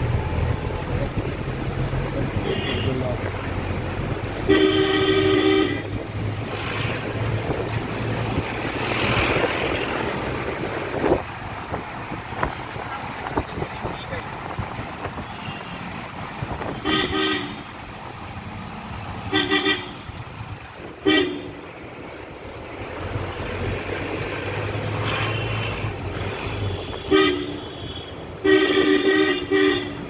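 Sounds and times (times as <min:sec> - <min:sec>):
car horn honking: 0:02.4 - 0:03.0, 0:04.4 - 0:05.9, 0:16.7 - 0:17.7, 0:19.3 - 0:20.2, 0:21.0 - 0:21.5, 0:26.5 - 0:30.0.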